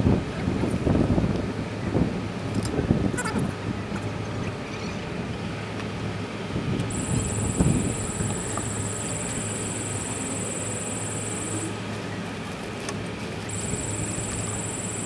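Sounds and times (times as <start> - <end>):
high-pitched buzz: 6.9 - 11.9, 13.4 - 15.0
motorcycle engine running: 6.9 - 12.0, 13.4 - 15.0.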